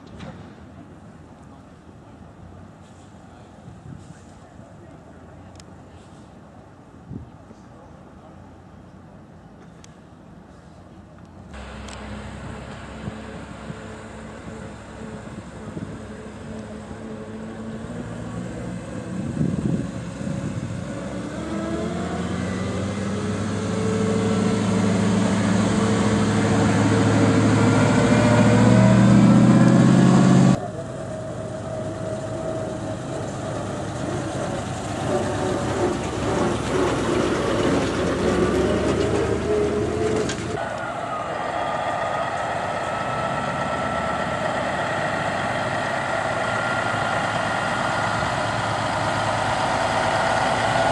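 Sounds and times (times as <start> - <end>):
truck engines driving past: 9.5 - 50.9
diesel tractor running: 11.6 - 50.9.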